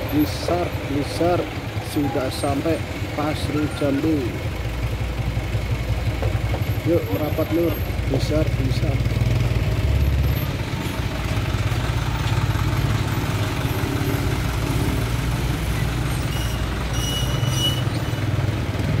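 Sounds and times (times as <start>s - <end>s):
truck engine rumbling: 0.0s - 19.0s
high thin squeal: 16.2s - 18.2s.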